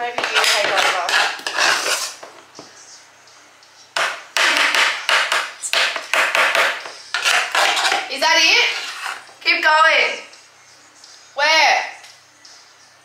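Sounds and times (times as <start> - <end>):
spoon scraping saucepan: 0.0 - 2.3, 4.4 - 9.4.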